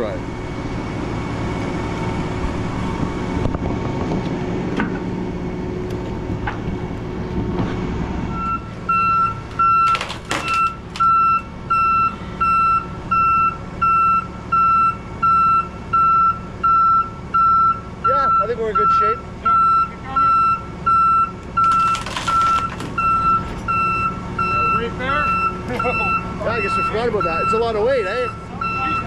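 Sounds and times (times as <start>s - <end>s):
truck engine rumbling: 0.0s - 29.0s
backup alarm beeping: 8.3s - 29.0s.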